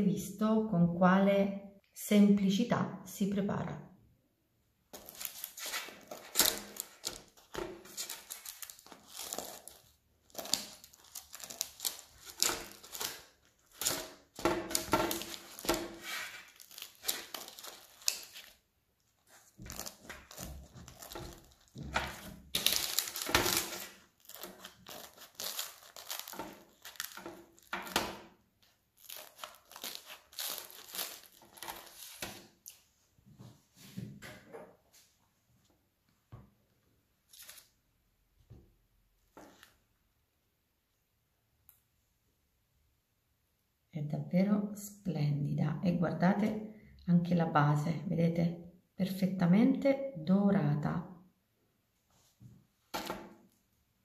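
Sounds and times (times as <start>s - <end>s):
baking paper crinkling: 4.9s - 32.9s, 37.2s - 37.8s.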